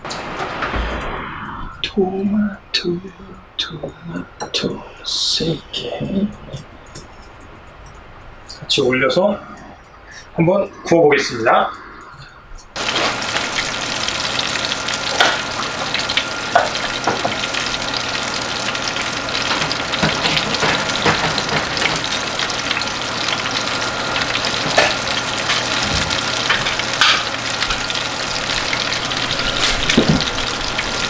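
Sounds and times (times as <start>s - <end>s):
oven hum: 0.0s - 31.0s
fish sizzling with crackles: 12.8s - 31.0s.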